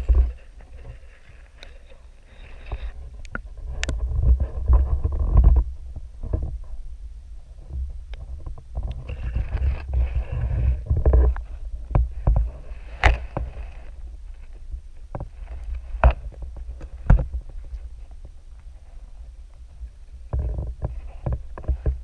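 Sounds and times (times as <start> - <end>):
muffled underwater rumble: 0.0 - 22.0.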